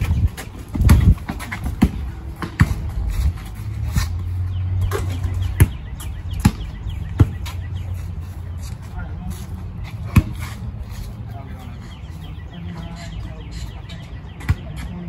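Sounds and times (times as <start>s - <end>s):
basketball bouncing on concrete: 0.0s - 7.8s, 9.9s - 10.6s, 14.4s - 15.0s.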